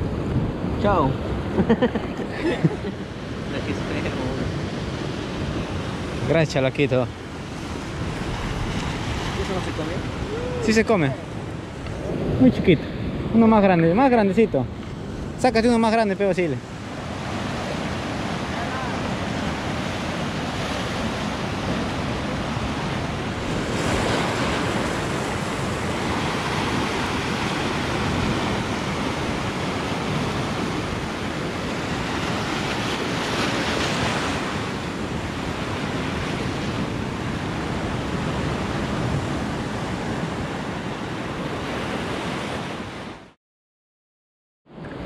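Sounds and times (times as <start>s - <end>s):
surf breaking over rocks: 6.0s - 12.0s.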